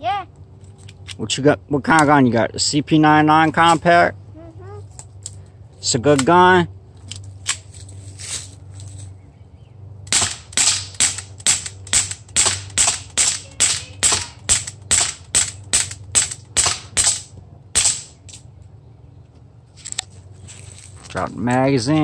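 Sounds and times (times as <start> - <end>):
bb pistol shots: 10.1 - 18.3.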